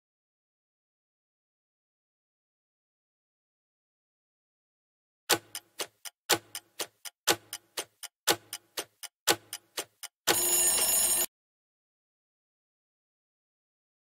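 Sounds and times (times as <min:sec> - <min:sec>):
clock ticking: 0:05.3 - 0:11.3
buzzer: 0:10.3 - 0:11.3.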